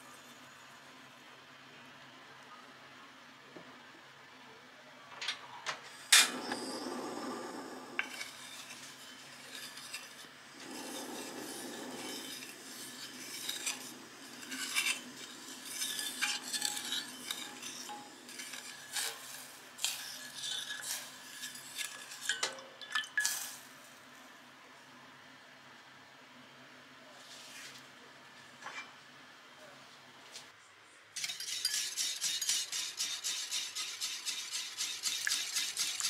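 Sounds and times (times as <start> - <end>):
wooden spoon scraping saucepan: 6.2 - 22.4.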